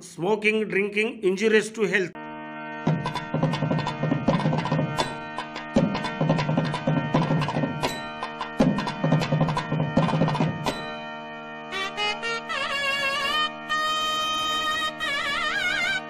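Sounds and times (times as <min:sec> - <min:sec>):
held musical notes: 0:02.2 - 0:16.0
drum strokes in regular beat: 0:02.8 - 0:11.0.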